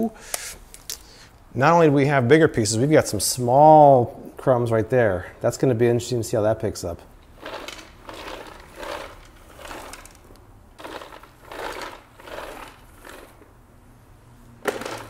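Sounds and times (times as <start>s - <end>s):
spinning broom sweeping tile floor: 7.4s - 13.5s, 14.4s - 15.0s.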